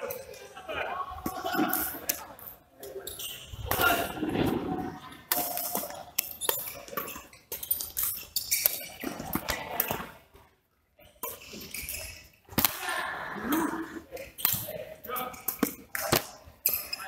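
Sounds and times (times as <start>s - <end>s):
rackets hitting shuttlecock: 5.3s - 10.1s, 11.2s - 12.9s, 15.3s - 17.0s.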